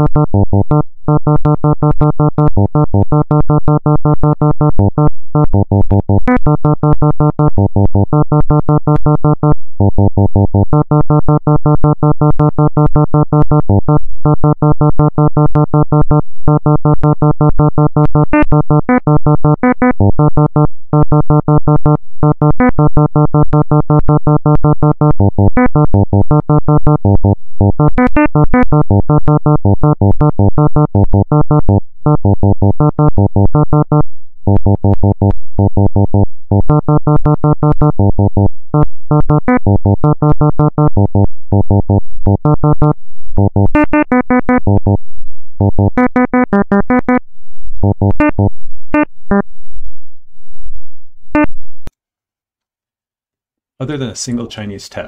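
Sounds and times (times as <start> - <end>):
synthesized keyboard notes: 15.1 - 45.0, 45.6 - 47.2, 47.9 - 49.4.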